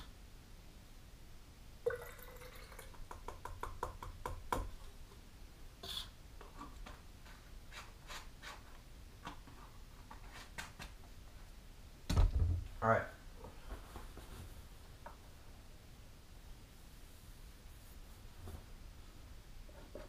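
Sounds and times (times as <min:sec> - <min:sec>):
liquid dripping and trickling: 0:01.9 - 0:03.2.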